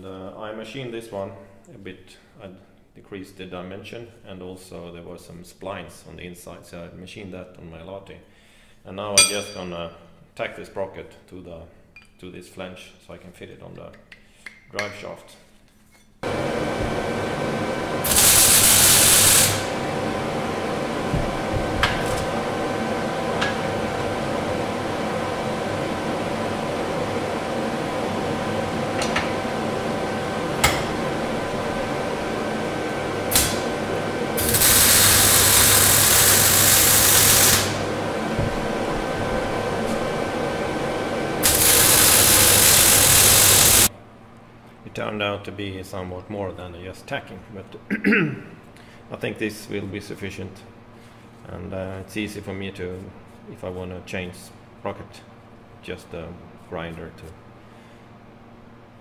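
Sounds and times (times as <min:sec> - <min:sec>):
welding arc buzzing: 0:16.2 - 0:43.9
extractor fan humming: 0:16.2 - 0:59.0.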